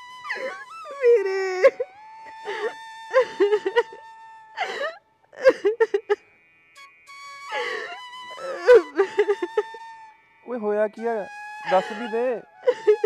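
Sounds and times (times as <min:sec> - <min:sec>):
soft flute music: 0:00.0 - 0:05.0, 0:06.8 - 0:13.0
woman crying and sobbing: 0:00.3 - 0:06.2, 0:07.5 - 0:09.8, 0:11.7 - 0:13.0.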